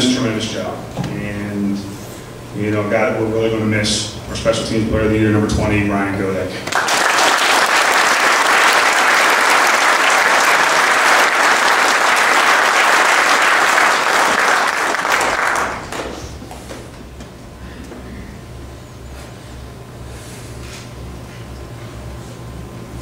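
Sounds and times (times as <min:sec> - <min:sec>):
audience applauding: 0:06.6 - 0:16.6.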